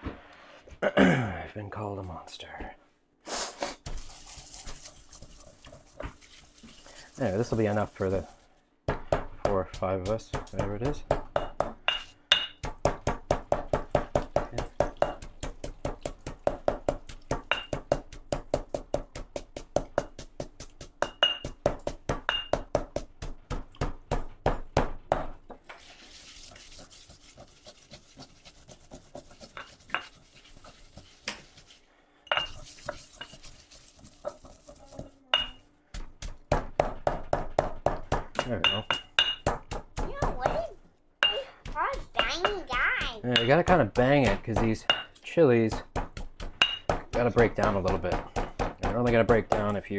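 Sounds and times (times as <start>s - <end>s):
pestle pounding in stone mortar: 8.8s - 25.6s, 32.4s - 40.6s, 41.6s - 49.9s.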